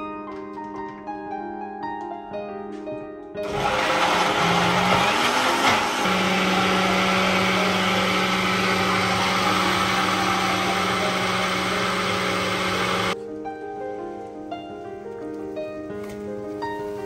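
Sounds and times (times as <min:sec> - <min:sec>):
blender running at high speed: 0:03.4 - 0:13.2.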